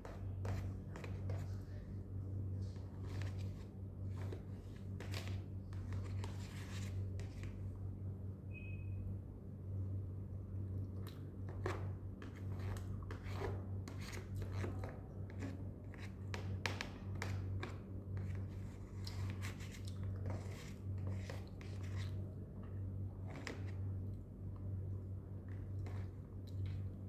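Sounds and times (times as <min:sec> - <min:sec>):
spoon scraping plastic container: 0:00.0 - 0:01.5, 0:11.5 - 0:16.4, 0:18.2 - 0:22.2, 0:23.3 - 0:23.8, 0:25.5 - 0:27.0
steady low hum: 0:00.0 - 0:27.0.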